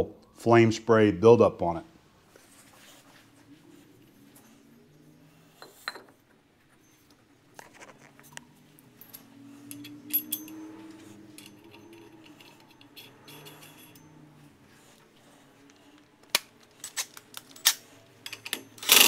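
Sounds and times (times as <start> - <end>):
metal clinks and taps: 5.6 - 6.8, 7.6 - 14.3.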